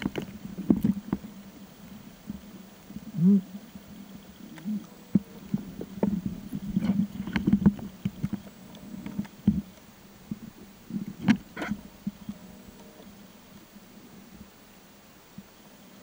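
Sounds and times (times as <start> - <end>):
underwater knocks and thumps: 0.0 - 1.3, 4.5 - 12.4
underwater low hum: 0.0 - 16.0.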